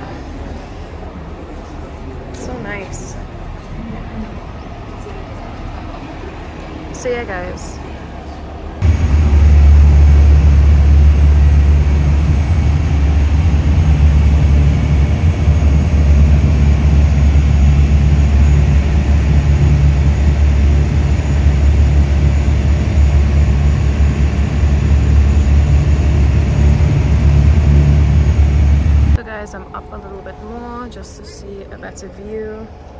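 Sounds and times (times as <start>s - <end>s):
boat engine droning: 8.8s - 32.9s.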